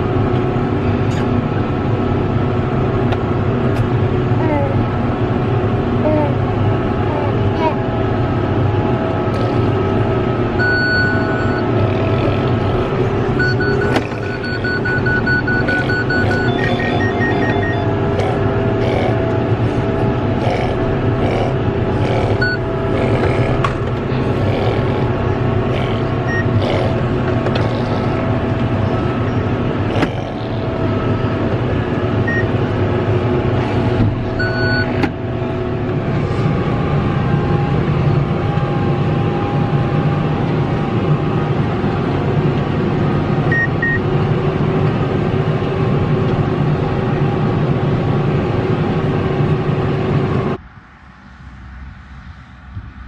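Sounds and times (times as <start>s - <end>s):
tractor and baler drone: 0.0s - 53.0s
short electronic beeps: 10.6s - 11.7s, 13.4s - 17.9s.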